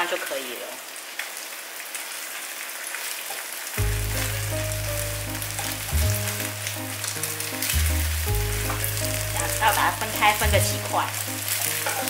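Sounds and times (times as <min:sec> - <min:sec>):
eggs sizzling in oil: 0:01.1 - 0:12.0
background music with low notes: 0:03.8 - 0:12.0.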